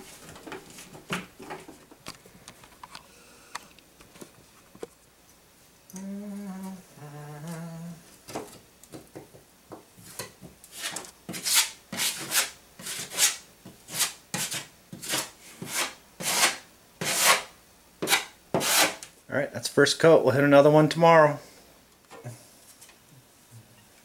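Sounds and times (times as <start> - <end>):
person humming: 5.9 - 8.2
putty knife scraping drywall: 10.7 - 19.1.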